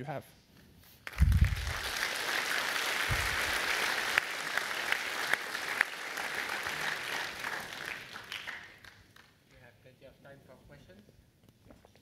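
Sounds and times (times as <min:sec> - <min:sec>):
large audience applauding: 0:01.0 - 0:09.4.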